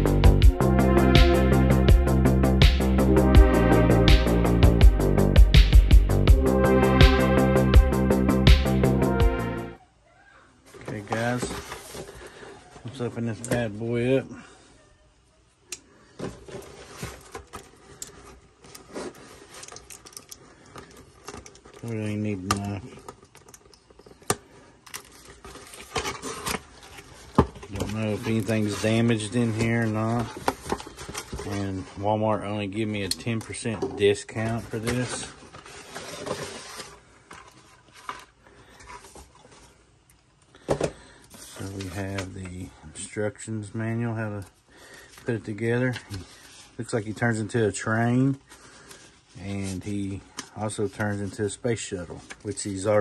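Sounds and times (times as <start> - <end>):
cardboard box rustling: 10.7 - 13.1, 16.2 - 23.2, 25.0 - 32.2, 34.0 - 39.7.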